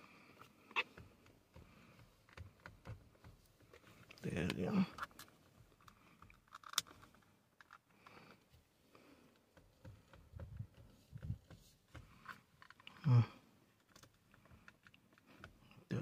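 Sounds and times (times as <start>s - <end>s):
small plastic clicks and knocks: 0.6s - 8.2s, 9.3s - 13.1s.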